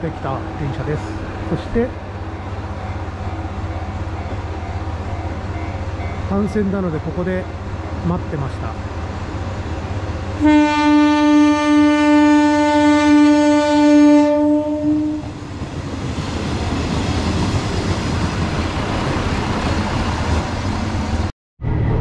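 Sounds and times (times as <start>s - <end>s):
railcar engine: 0.0s - 22.0s
train horn blast: 10.4s - 15.4s
train wheels on rails: 15.2s - 21.3s.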